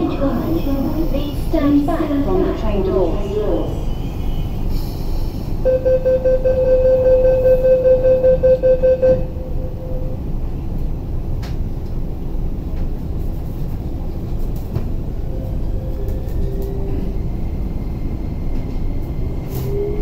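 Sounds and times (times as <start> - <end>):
train carriage rumble: 0.0 - 20.0
train door warning beeps: 3.0 - 10.3, 15.3 - 20.0.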